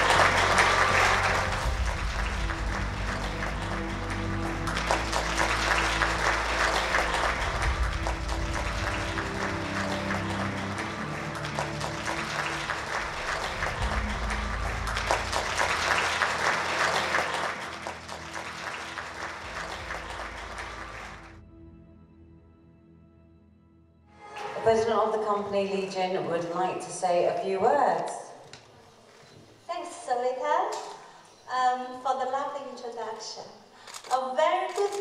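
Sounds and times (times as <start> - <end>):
audience clapping: 0.0 - 21.4
background music: 0.0 - 28.4.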